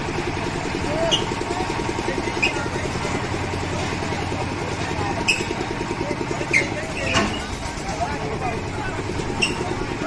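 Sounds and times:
engine chugging: 0.0s - 10.0s
short sharp squeaks: 1.0s - 1.4s, 5.2s - 5.6s, 6.4s - 7.6s, 9.3s - 9.8s.

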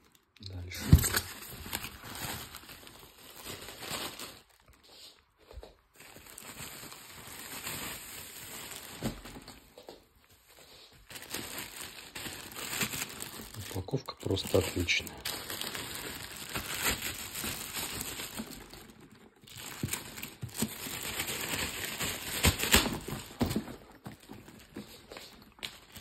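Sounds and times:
packaging rustling and crinkling: 0.0s - 26.0s.

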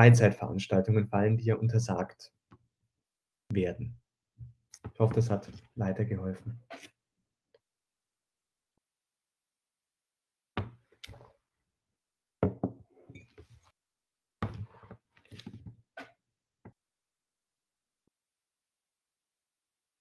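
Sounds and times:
knocks and thumps: 10.6s - 10.8s, 12.4s - 13.2s.

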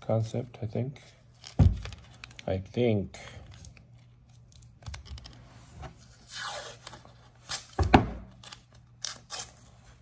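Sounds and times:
tape tearing off roll: 6.2s - 9.6s.

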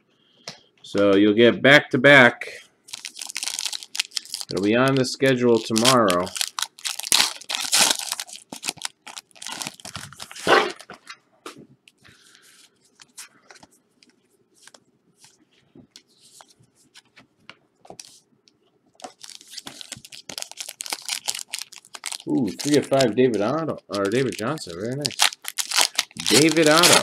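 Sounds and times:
wrappers tearing and crinkling: 2.9s - 10.9s, 19.0s - 27.0s.

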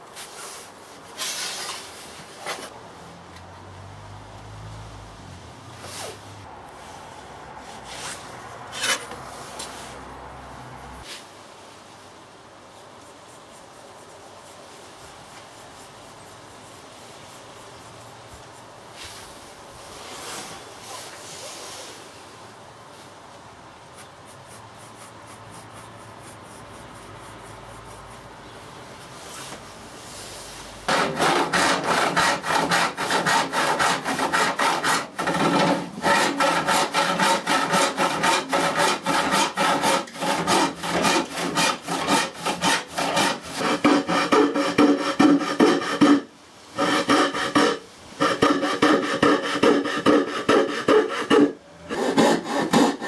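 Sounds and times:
hand saw cutting wood: 8.0s - 9.2s, 30.9s - 53.0s.

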